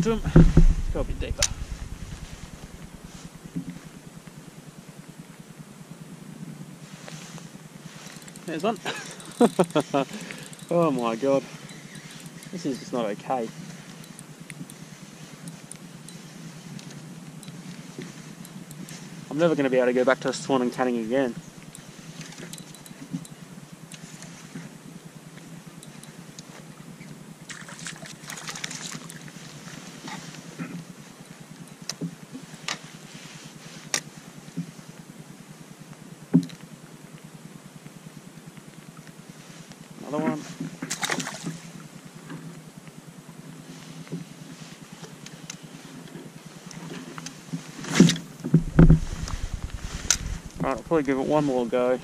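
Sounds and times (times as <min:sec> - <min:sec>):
sharp knocks: 0:00.0 - 0:03.0, 0:48.5 - 0:50.6
low steady hum: 0:00.0 - 0:52.0.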